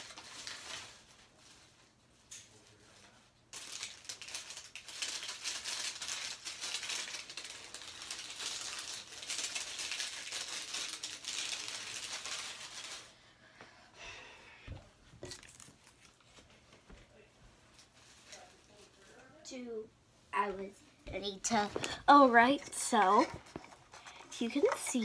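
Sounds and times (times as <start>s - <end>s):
plastic wrappers crinkling and rattling: 0.0s - 13.2s, 15.2s - 16.8s, 17.7s - 19.2s, 21.5s - 25.0s.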